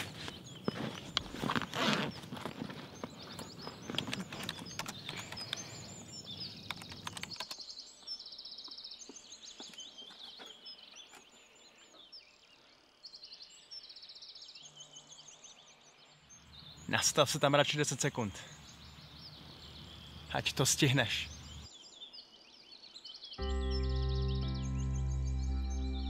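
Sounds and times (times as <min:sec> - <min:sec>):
rustling and clicking: 0:00.0 - 0:05.8, 0:06.6 - 0:07.7
high chirping trills: 0:23.4 - 0:26.0.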